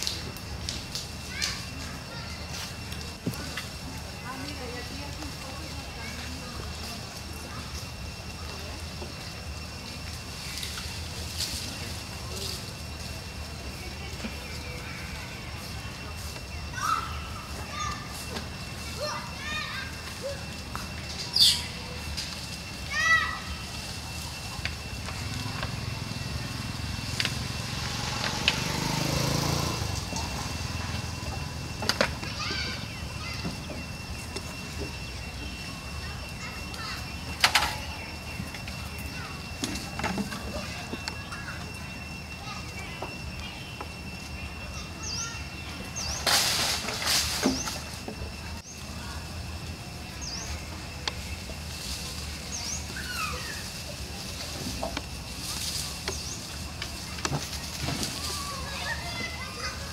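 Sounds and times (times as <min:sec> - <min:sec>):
vehicle engine droning: 0:00.0 - 0:59.9
bird chirping: 0:21.2 - 0:22.0
rustling noise: 0:46.1 - 0:48.3.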